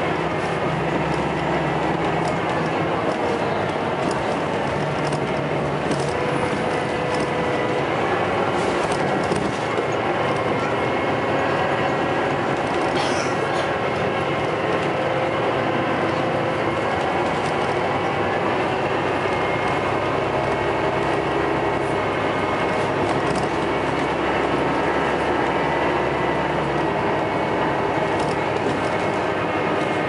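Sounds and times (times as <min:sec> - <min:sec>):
bus engine drone with whine: 0:00.0 - 0:30.0
road noise: 0:00.0 - 0:30.0
bodywork rattles: 0:00.1 - 0:10.6.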